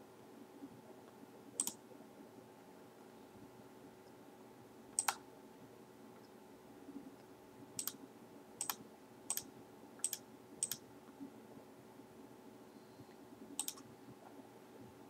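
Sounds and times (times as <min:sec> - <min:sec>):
faint steady hum: 0:00.0 - 0:15.0
computer mouse clicking: 0:01.6 - 0:01.8, 0:05.0 - 0:05.2, 0:07.8 - 0:08.0, 0:08.6 - 0:10.8, 0:13.6 - 0:13.9.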